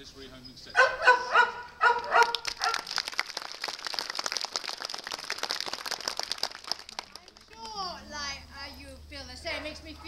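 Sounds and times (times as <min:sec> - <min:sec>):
dog barking: 0:00.8 - 0:02.9
crowd applauding: 0:02.0 - 0:07.8.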